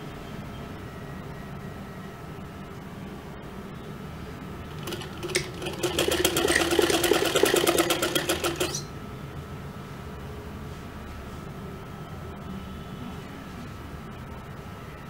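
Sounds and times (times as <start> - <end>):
sewing machine click: 4.7 - 8.9
sewing machine stitching: 4.7 - 8.9.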